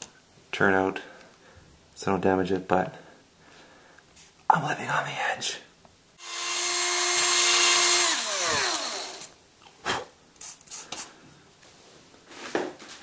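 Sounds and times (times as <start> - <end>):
electric drill spinning down: 6.2 - 9.4.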